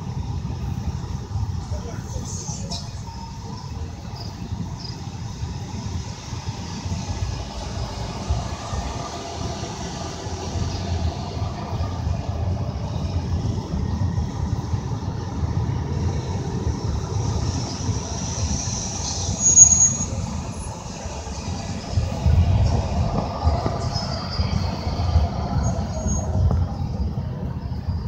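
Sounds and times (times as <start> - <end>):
car engine and road rumble: 0.0 - 28.0
short high-pitched squeal: 18.8 - 20.8.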